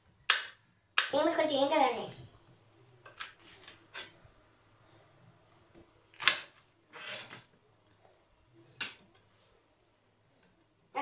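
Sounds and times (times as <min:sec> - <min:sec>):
knife scraping through pepper: 0:06.9 - 0:07.4.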